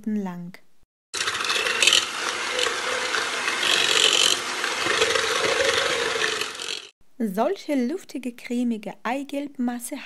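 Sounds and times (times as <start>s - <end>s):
beaters rubbing plastic bowl: 1.2s - 6.9s
electric hand mixer running: 1.2s - 7.0s.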